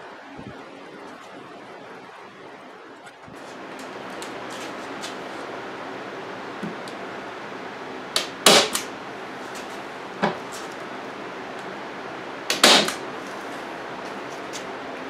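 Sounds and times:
staple gun shots: 8.2 - 8.9, 12.5 - 13.0.

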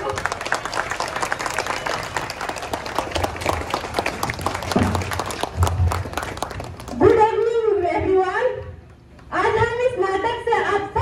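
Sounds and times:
crowd applauding: 0.0 - 7.2.

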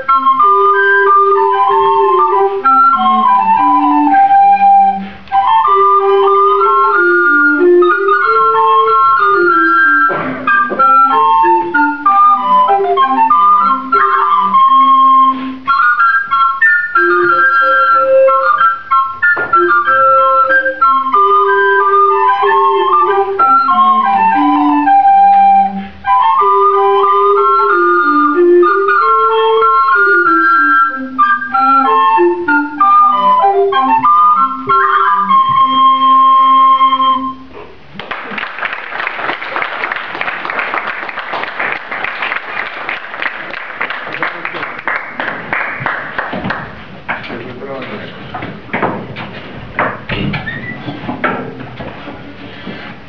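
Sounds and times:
recorder consort playing: 0.0 - 53.0
audience applause: 38.0 - 47.0.

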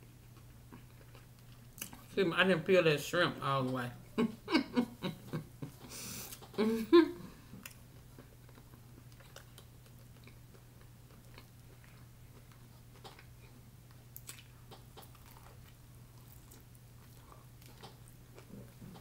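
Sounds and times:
chewing corn on the cob: 0.1 - 2.1, 7.6 - 19.0.

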